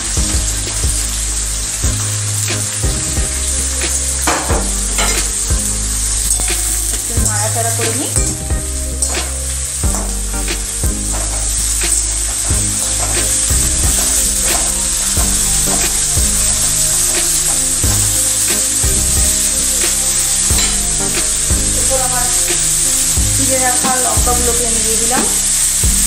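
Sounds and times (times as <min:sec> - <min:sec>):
vegetables sizzling in oil: 0:00.0 - 0:26.0.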